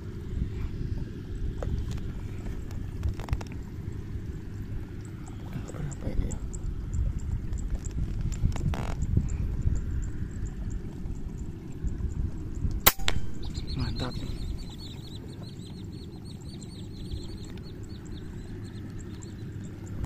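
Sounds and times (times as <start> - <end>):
low wind rumble: 0.0 - 20.0
high bird chirps: 12.6 - 20.0
air rifle crack: 12.8 - 13.6.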